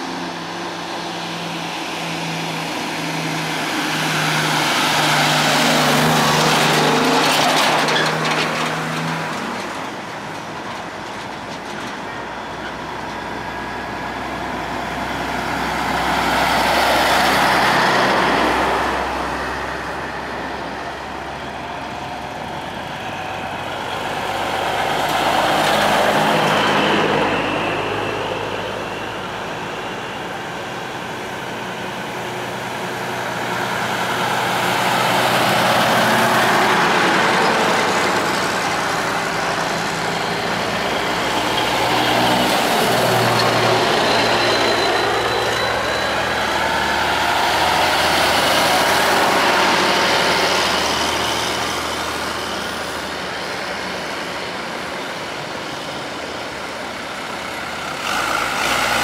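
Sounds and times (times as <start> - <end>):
trucks driving past: 0.0 - 59.0.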